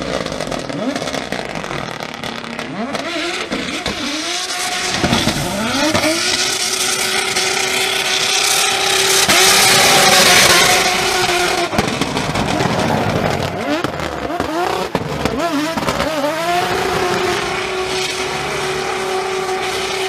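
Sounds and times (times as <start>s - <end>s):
car engine revving hard: 0.0s - 20.0s.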